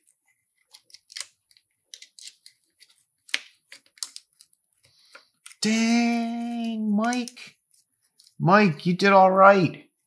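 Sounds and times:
plastic sheet clicks and crinkles: 0:00.0 - 0:05.6.

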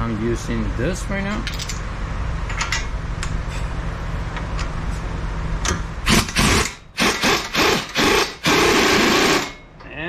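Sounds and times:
pneumatic impact wrench hammering: 0:06.0 - 0:09.6.

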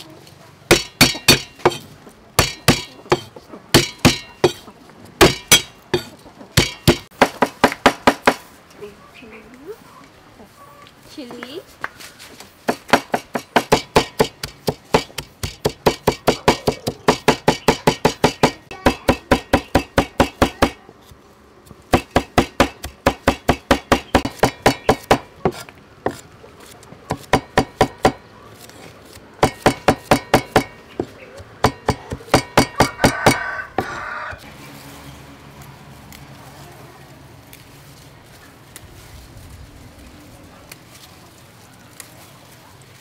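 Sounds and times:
cleaver chopping on wooden block: 0:00.7 - 0:04.6, 0:05.2 - 0:08.4, 0:12.7 - 0:20.8, 0:21.9 - 0:28.3, 0:29.4 - 0:34.0.

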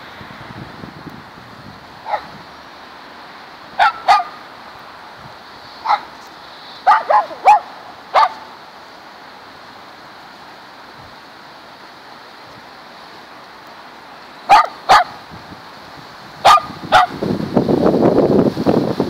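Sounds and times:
dog barking: 0:02.0 - 0:02.3, 0:03.8 - 0:04.4, 0:05.8 - 0:06.2, 0:06.8 - 0:08.5, 0:14.5 - 0:15.2, 0:16.4 - 0:17.2.

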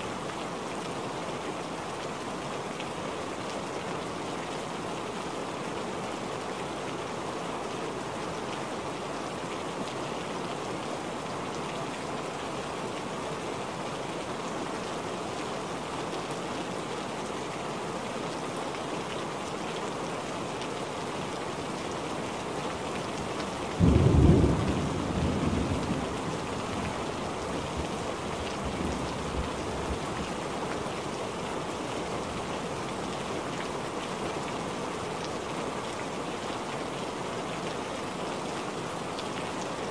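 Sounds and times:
steady rain falling: 0:00.0 - 0:39.9
loud thunderclap rumbling: 0:23.8 - 0:26.1.

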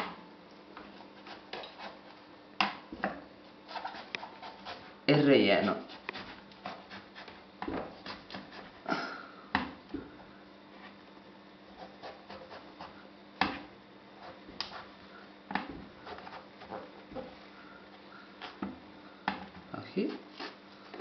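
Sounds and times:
knife scraping aubergine flesh: 0:20.0 - 0:21.0.

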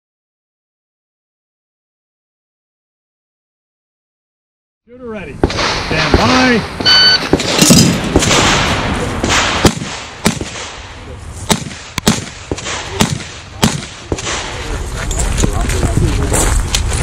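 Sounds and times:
revolver gunshots: 0:05.4 - 0:14.8
shot timer beep: 0:06.8 - 0:07.2.

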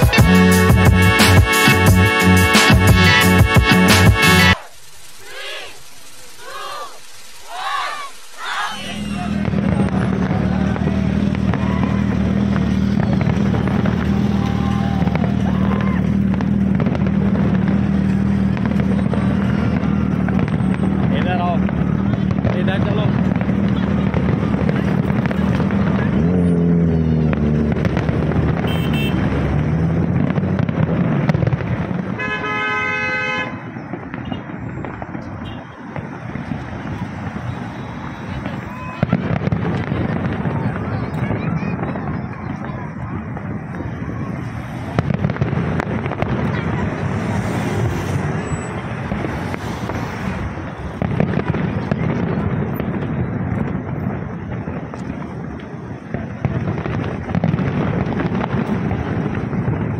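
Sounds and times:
car horn blaring: 0:00.0 - 0:04.6, 0:28.6 - 0:29.3, 0:32.2 - 0:34.6, 0:35.4 - 0:35.9
fireworks bursting: 0:00.0 - 0:59.9
heavy road traffic: 0:00.0 - 0:59.9
crackling pops: 0:03.9 - 0:26.4, 0:33.8 - 0:59.9.

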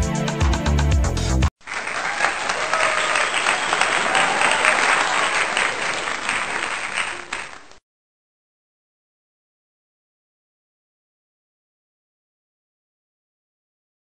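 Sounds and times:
crowd applause: 0:01.6 - 0:07.8.

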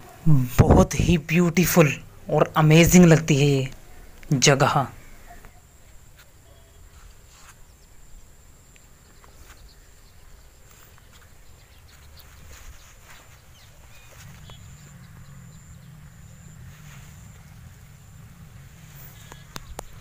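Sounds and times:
faint high whine: 0:00.0 - 0:20.0
wind rumble on microphone: 0:00.2 - 0:01.2, 0:11.2 - 0:20.0
footsteps rustling in grass: 0:06.0 - 0:07.8, 0:09.1 - 0:15.2, 0:16.6 - 0:17.6.

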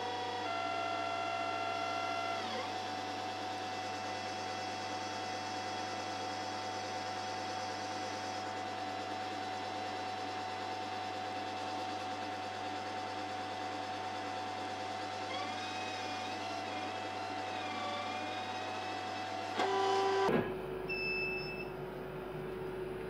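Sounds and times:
laser cutter hiss and hum: 0:00.0 - 0:20.4
short high beep: 0:20.9 - 0:21.7.

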